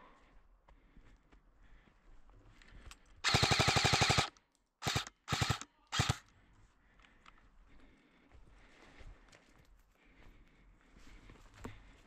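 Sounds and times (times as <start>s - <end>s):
airsoft gun bursts: 3.2s - 6.3s.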